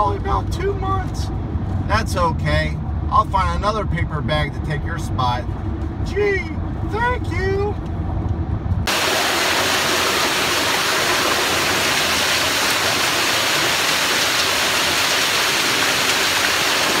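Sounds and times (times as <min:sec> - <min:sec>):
waterfall rushing and splashing: 0:08.9 - 0:17.0.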